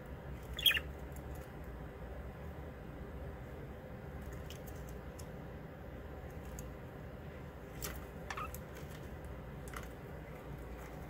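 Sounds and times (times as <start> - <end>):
bird chirp: 0.5 - 0.9.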